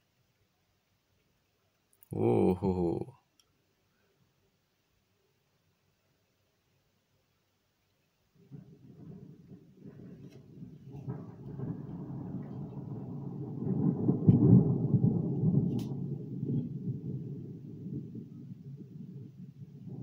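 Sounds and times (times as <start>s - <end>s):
sharp thunder cracks: 8.5s - 20.0s
thunder rumbling: 8.5s - 20.0s.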